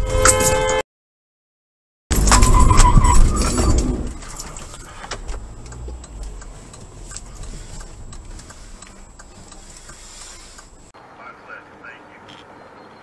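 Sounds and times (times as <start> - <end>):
low rumble of car on road: 2.1 - 13.0
car turn signal ticking: 4.6 - 10.9.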